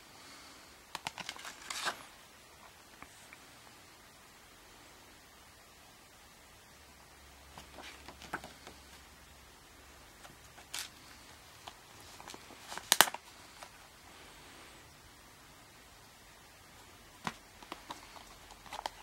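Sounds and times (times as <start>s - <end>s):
paper rustling: 0.9s - 2.2s, 7.5s - 9.0s, 10.2s - 13.8s, 17.2s - 19.0s.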